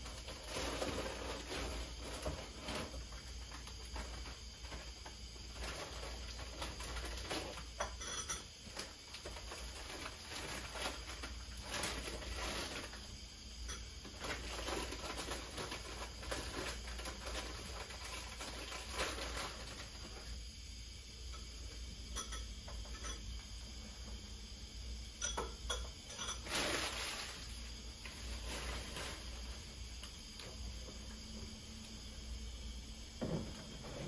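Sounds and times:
rustling: 0.0s - 7.8s, 8.6s - 13.1s, 14.0s - 20.3s, 26.2s - 29.8s.

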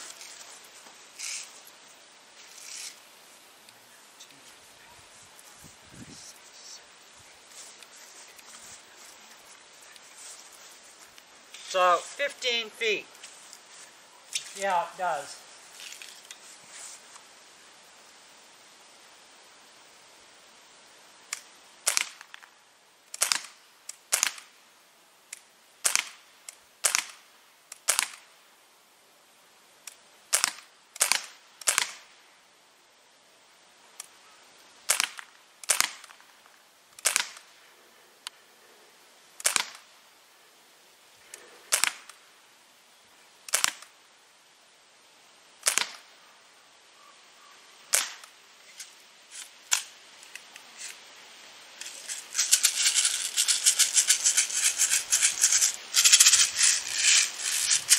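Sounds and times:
air rifle shots cracking: 21.9s - 22.2s, 30.3s - 32.0s, 34.9s - 36.2s, 37.0s - 37.5s, 39.4s - 39.9s, 41.7s - 42.2s, 45.6s - 46.1s, 47.9s - 48.3s.

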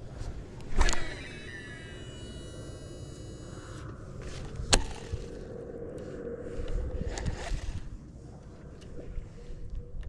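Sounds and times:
reel humming as line reels in: 0.0s - 5.6s
fishing reel spool whine: 0.5s - 7.8s
fishing reel click: 0.6s - 3.8s.

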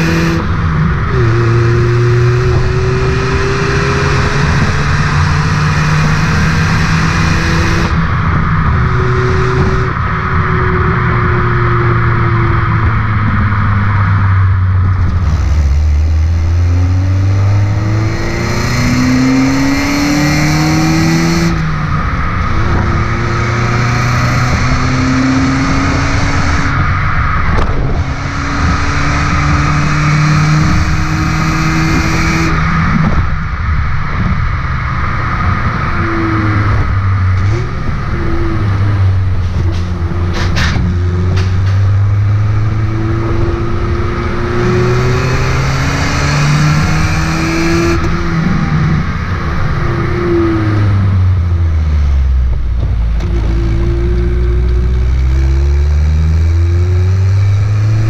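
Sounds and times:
car engine accelerating: 0.0s - 58.0s.

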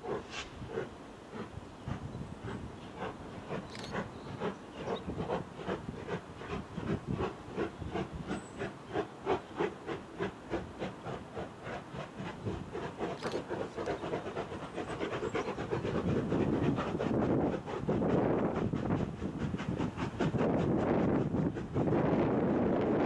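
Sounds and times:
steam locomotive chuffing: 0.0s - 23.0s.

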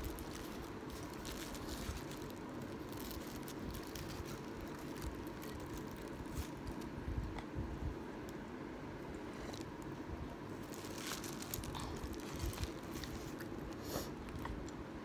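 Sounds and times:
plastic bowl and bag rustling: 0.0s - 6.9s, 10.6s - 14.1s.

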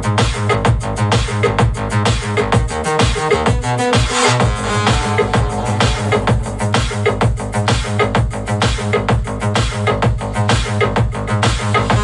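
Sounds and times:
kick drum: 0.0s - 12.0s
techno music: 0.0s - 12.0s.

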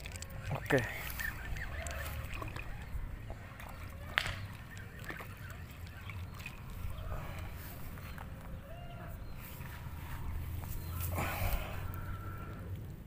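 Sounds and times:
fowl calling faintly: 0.4s - 12.7s.

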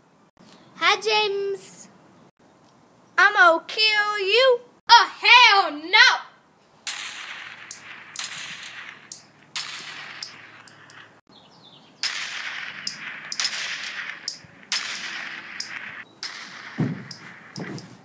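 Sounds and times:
toy gun shots with hiss: 6.9s - 10.6s, 12.0s - 18.0s.

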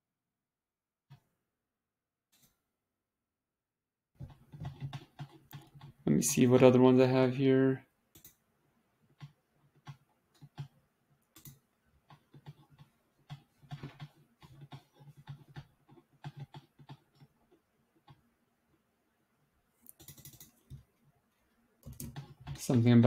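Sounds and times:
computer keyboard typing: 4.2s - 6.0s, 8.2s - 8.4s, 9.1s - 18.2s, 19.8s - 20.8s, 21.8s - 22.9s.

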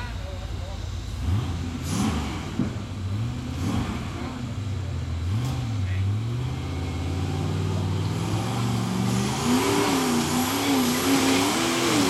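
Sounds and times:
engine running under load: 0.0s - 12.0s.

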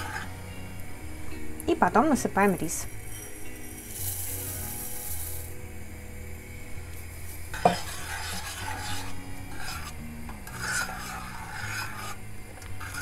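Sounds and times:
spoon scraping in a metal pot: 0.0s - 0.4s, 2.9s - 5.6s, 7.5s - 13.0s.

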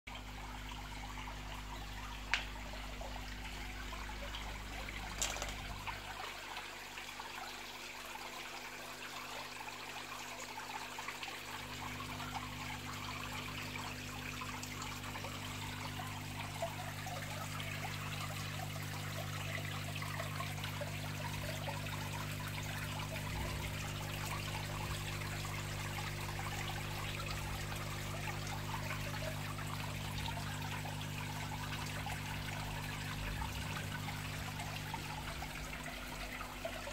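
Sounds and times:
water trickling and splashing: 0.1s - 36.9s
air bubbles breaking surface: 4.9s - 6.0s.

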